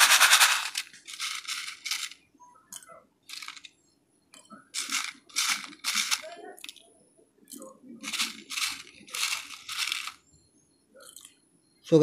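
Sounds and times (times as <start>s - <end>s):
brick pieces rattling in plastic bowl: 0.0s - 2.2s, 3.3s - 3.7s, 4.8s - 6.7s, 8.0s - 10.2s.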